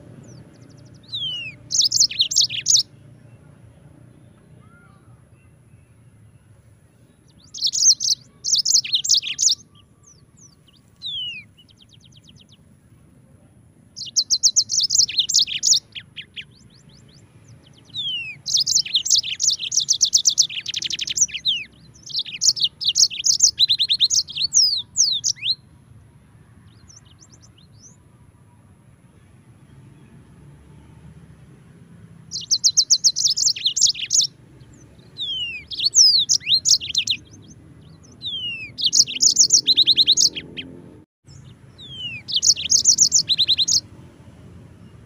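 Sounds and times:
canary singing trills and whistles: 0.2 - 2.9, 7.2 - 12.6, 13.9 - 25.6, 32.3 - 43.9.

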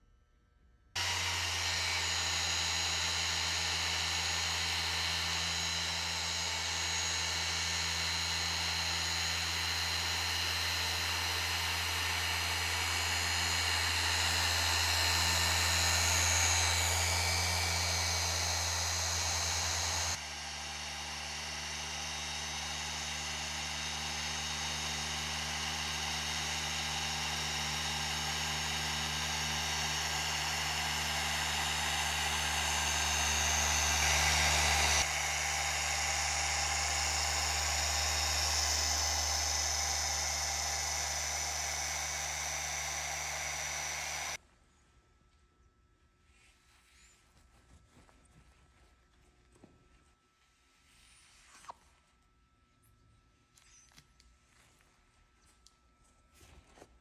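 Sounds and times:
machine polisher motor whining: 1.0 - 44.4.

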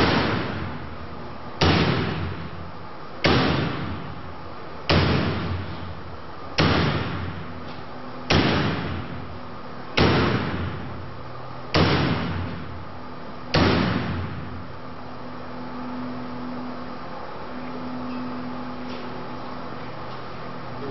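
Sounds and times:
axe striking wire mesh: 1.6 - 2.4, 3.2 - 4.0, 4.9 - 5.8, 6.6 - 9.0, 11.7 - 12.6, 13.5 - 14.2.

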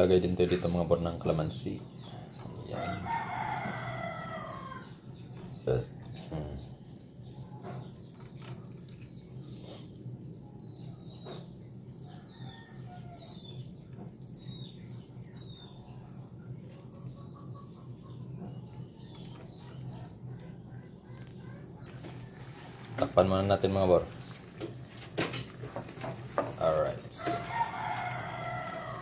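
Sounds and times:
faint bird chirps: 1.9 - 24.4.

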